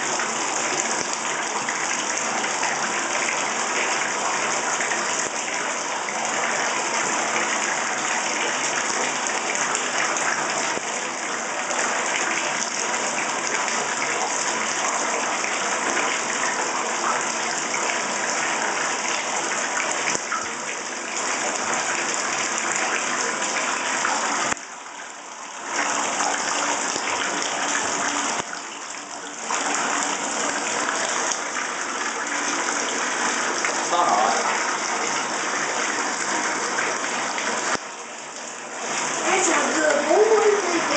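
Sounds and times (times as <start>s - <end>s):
water running into a bathtub: 0.0s - 40.9s.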